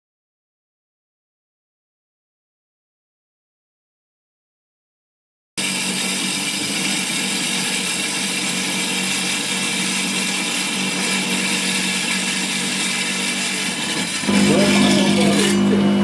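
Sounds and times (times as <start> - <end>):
blade grinding through stone: 5.6 - 16.0
tile saw motor running: 5.6 - 16.0.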